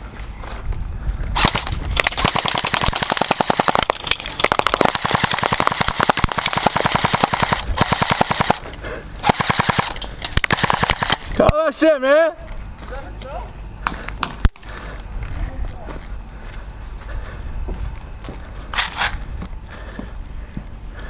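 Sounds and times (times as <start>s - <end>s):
airsoft rifle automatic fire: 1.4s - 8.6s, 9.2s - 11.4s.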